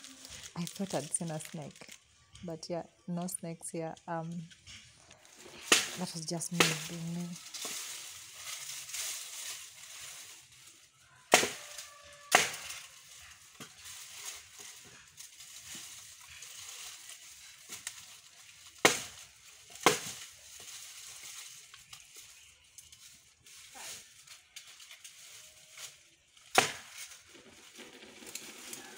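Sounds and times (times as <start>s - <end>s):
dry brush crunching: 0.0s - 2.3s, 4.6s - 28.9s
digging tool chopping timber posts: 5.5s - 7.0s, 11.3s - 11.6s, 12.3s - 12.8s, 18.8s - 20.3s, 26.5s - 27.1s.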